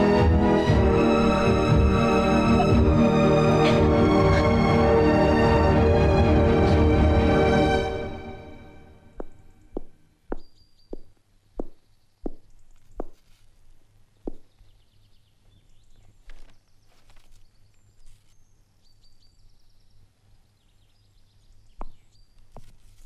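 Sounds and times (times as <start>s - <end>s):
faint bird chirping: 9.1s - 23.0s
footsteps on wooden stairs: 9.2s - 12.4s.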